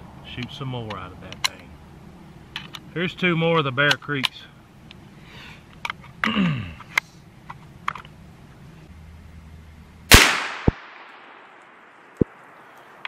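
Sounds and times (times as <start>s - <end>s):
rifle shot: 10.1s - 12.2s.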